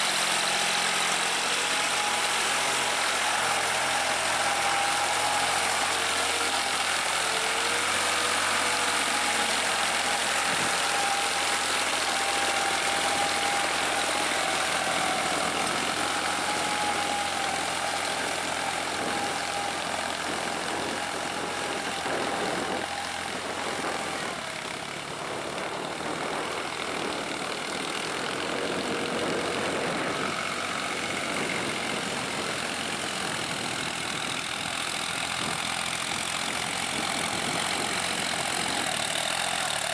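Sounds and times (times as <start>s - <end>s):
rotary tiller churning mud: 0.0s - 39.9s
tractor diesel engine running: 0.0s - 39.9s.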